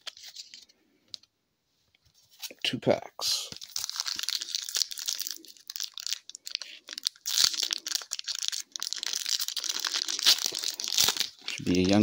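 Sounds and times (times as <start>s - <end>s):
foil wrapper crinkling: 3.5s - 12.0s.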